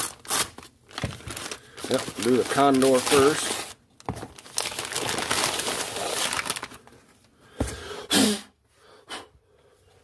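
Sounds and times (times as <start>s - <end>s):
paper mailer rustling: 0.0s - 6.9s.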